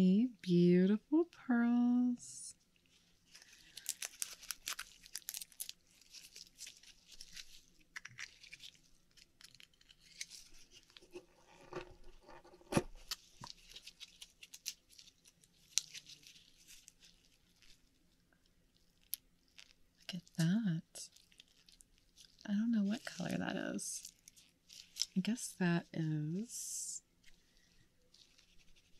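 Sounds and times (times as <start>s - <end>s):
oyster shell clicking and crackling: 3.6s - 10.4s.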